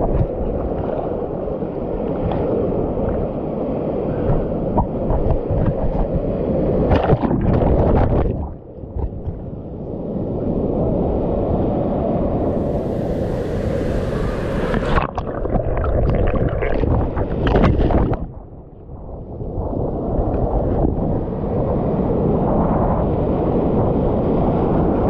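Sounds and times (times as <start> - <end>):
ocean surf splashing: 9.6 - 18.4.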